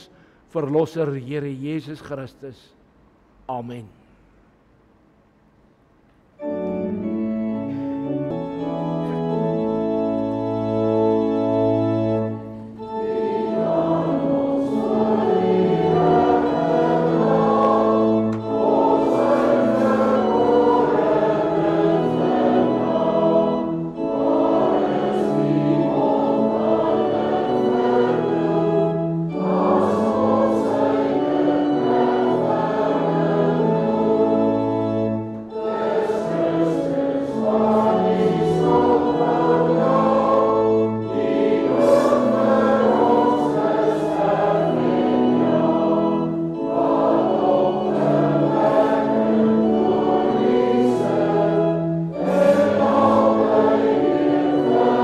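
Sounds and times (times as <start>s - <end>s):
organ playing held chords: 6.3s - 55.0s
group singing a hymn: 11.2s - 55.0s.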